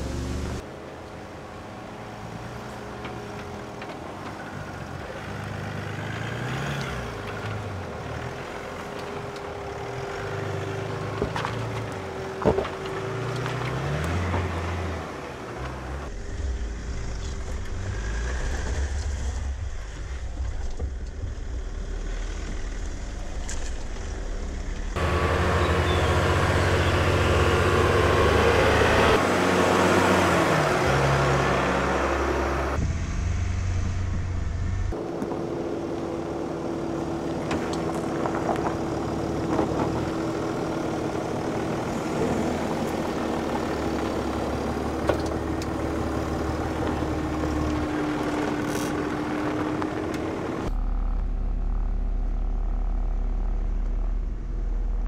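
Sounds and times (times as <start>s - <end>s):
suv engine crawling over rocks: 3.0s - 26.1s, 35.0s - 55.0s.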